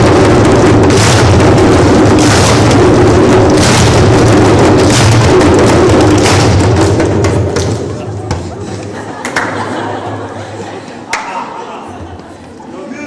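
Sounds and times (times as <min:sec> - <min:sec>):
group drumming: 0:00.0 - 0:10.2.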